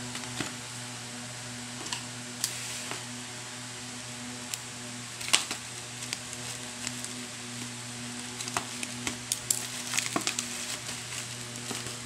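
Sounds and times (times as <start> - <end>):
steady low hum: 0.0 - 12.0
plastic packaging crinkling: 5.2 - 12.0.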